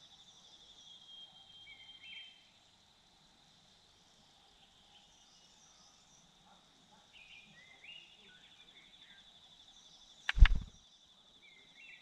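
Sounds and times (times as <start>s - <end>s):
bird chirps: 9.9s - 10.8s
bird wings fluttering: 10.3s - 10.8s.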